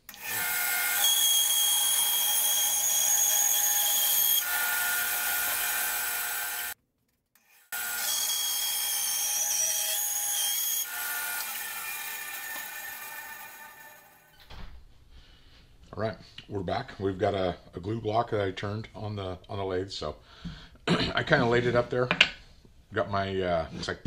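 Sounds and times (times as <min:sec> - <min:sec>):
band saw cutting wood: 0:00.0 - 0:06.8, 0:07.4 - 0:14.3.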